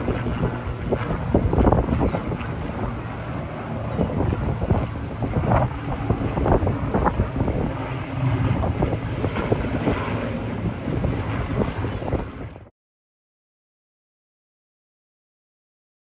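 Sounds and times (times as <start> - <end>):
propeller plane flying past: 0.0 - 12.7
wind buffeting microphone: 0.0 - 12.7.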